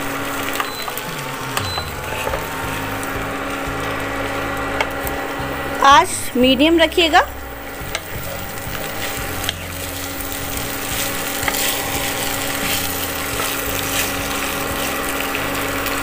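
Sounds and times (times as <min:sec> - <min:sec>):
light sizzle: 0:00.0 - 0:16.0
steady low hum: 0:00.0 - 0:16.0
wooden spatula scraping pan: 0:08.1 - 0:15.6.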